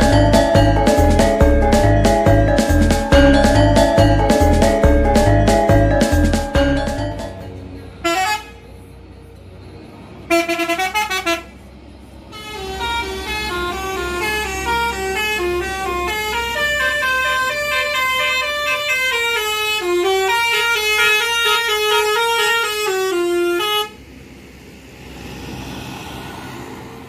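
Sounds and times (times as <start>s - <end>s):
musical bus horn tune: 0.0s - 7.4s, 8.0s - 8.7s, 10.2s - 11.6s, 12.3s - 24.0s
low engine rumble: 0.0s - 27.0s.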